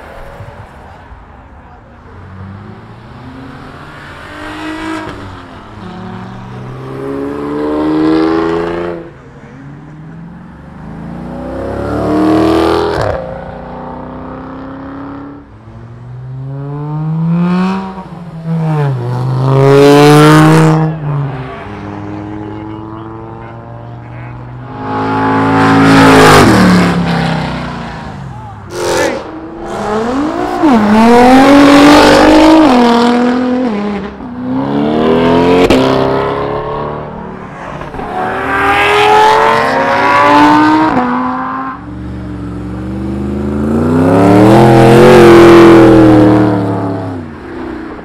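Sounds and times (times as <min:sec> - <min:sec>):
cars accelerating past: 0:02.2 - 0:48.0.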